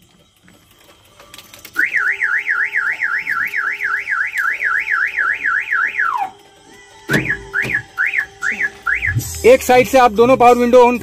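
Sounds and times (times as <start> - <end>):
warbling car alarm siren: 1.8 - 6.4, 7.1 - 9.6.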